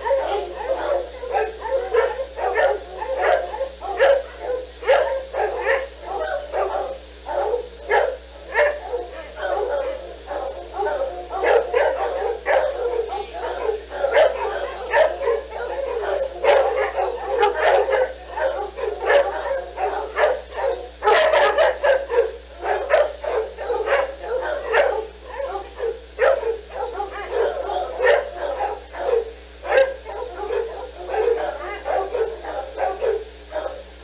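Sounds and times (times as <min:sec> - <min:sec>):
dogs barking excitedly: 0:00.0 - 0:34.0.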